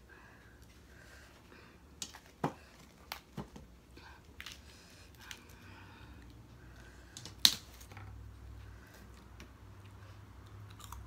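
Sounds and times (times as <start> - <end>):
greens snapping: 7.2 - 7.9.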